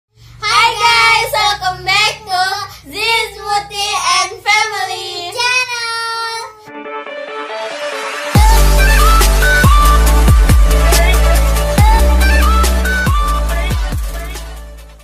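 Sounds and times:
girls and woman singing a chant: 0.4 - 6.6.

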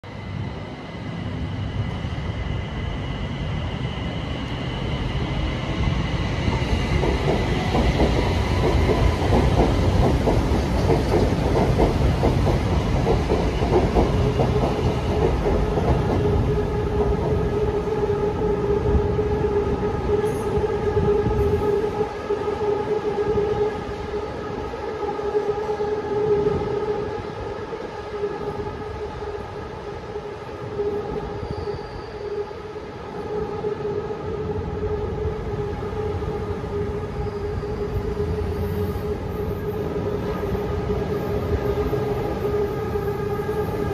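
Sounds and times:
train wheels rumbling on track: 0.1 - 23.8.

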